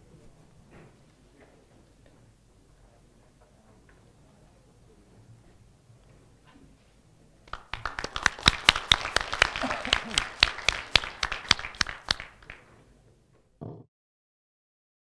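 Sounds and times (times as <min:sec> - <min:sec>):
audience applauding: 0:07.5 - 0:12.7.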